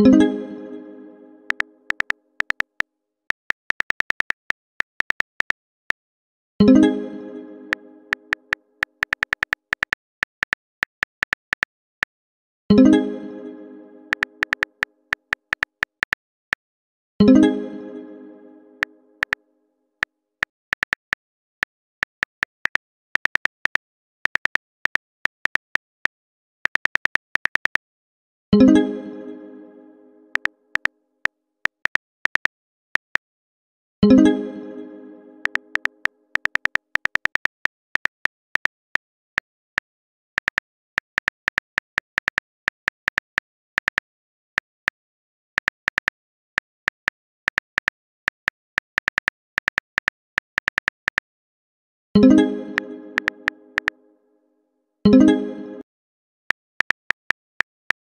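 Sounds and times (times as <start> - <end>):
phone keyboard typing clicks: 1.5 - 6.0, 8.1 - 12.2, 14.1 - 16.6, 20.4 - 27.8, 30.3 - 30.9, 31.7 - 33.2, 35.4 - 45.0, 45.6 - 51.3, 53.2 - 53.9, 56.5 - 58.0.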